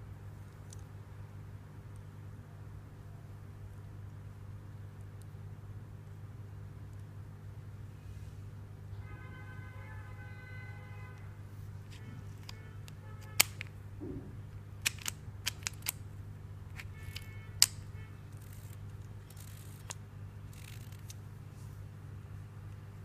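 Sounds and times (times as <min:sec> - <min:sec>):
steady low hum: 0:00.0 - 0:23.0
sharp small tool clicks: 0:13.2 - 0:13.7, 0:14.8 - 0:16.0.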